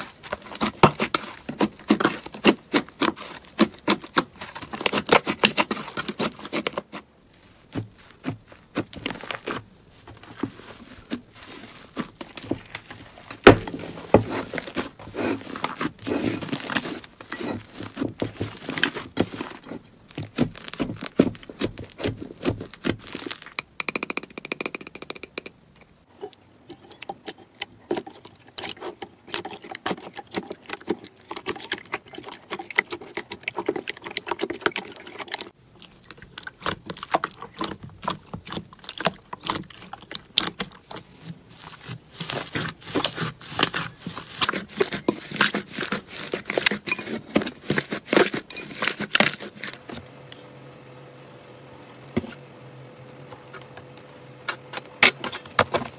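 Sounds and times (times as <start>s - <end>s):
slime squelching and popping: 26.8s - 46.8s.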